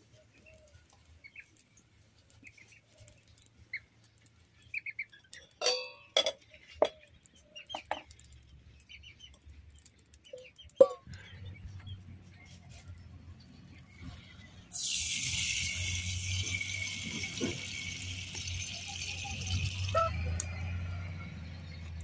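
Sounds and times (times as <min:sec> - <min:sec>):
metal tumblers and utensils clinking: 0:05.4 - 0:07.1, 0:10.3 - 0:11.1, 0:14.8 - 0:20.2.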